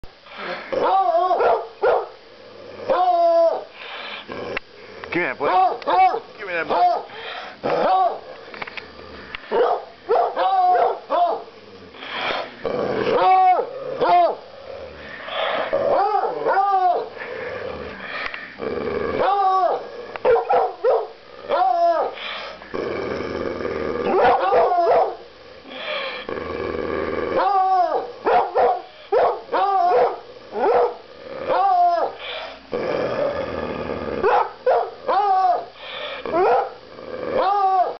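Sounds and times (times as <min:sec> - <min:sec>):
dogs growling: 0:00.3 - 0:37.9
dogs barking and yipping: 0:00.8 - 0:02.2, 0:09.5 - 0:11.5, 0:19.2 - 0:22.3, 0:24.1 - 0:25.2, 0:27.4 - 0:32.3, 0:34.3 - 0:35.7, 0:36.4 - 0:36.8.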